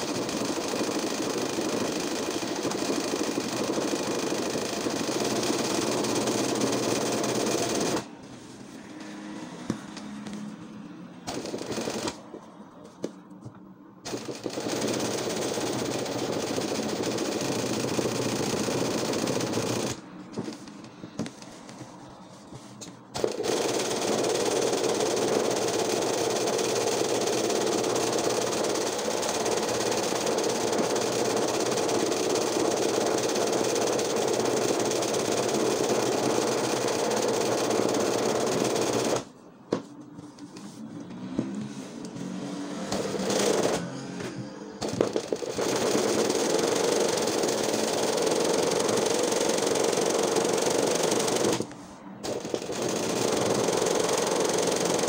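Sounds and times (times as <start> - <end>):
sewing machine stitching: 0.0 - 8.1, 11.3 - 12.2, 14.0 - 20.7, 23.1 - 39.3, 42.7 - 44.0, 44.8 - 55.0.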